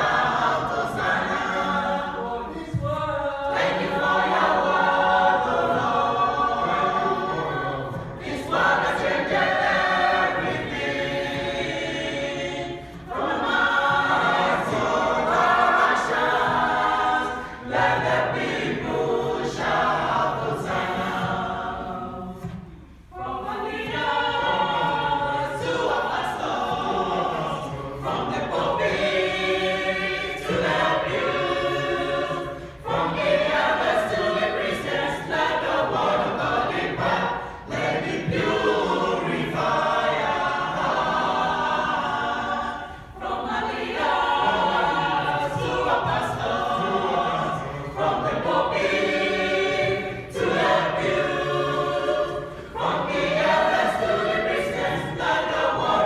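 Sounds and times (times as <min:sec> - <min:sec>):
choir singing in harmony: 0:00.0 - 0:56.0.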